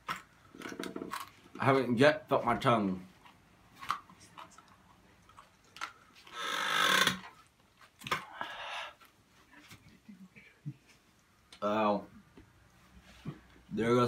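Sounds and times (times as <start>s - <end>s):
breath hissing through pursed mouth: 6.3s - 7.1s, 8.3s - 9.0s.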